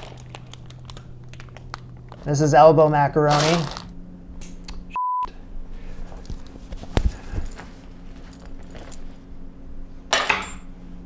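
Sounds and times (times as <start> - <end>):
low hum: 0.0 - 11.0
short beep tone: 5.0 - 5.3.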